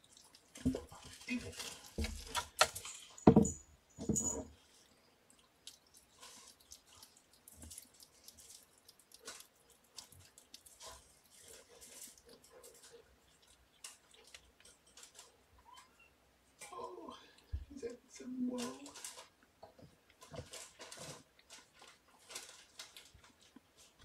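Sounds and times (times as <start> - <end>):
light clicks and rustles: 0.0 - 16.0, 18.5 - 24.0
toys knocking and tapping on floor: 2.0 - 4.3.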